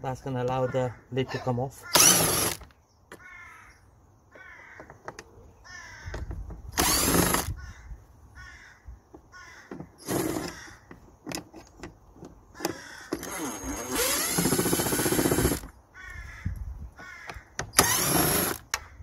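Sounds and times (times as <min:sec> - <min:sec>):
cordless drill-driver spinning: 0:01.9 - 0:02.6, 0:06.8 - 0:07.6, 0:10.0 - 0:10.6, 0:13.2 - 0:15.7, 0:17.8 - 0:18.7.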